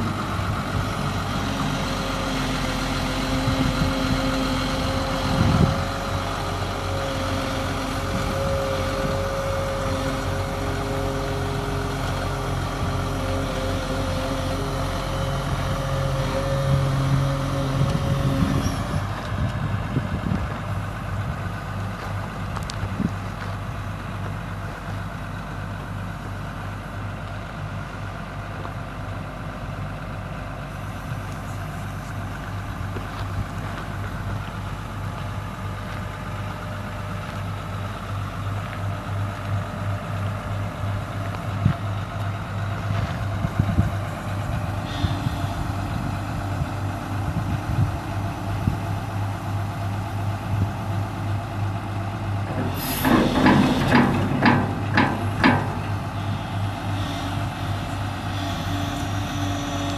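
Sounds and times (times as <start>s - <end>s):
excavator diesel engine running: 0.0s - 59.9s
hydraulic whine: 44.4s - 49.1s, 52.4s - 59.9s
metallic clanks: 52.4s - 56.1s.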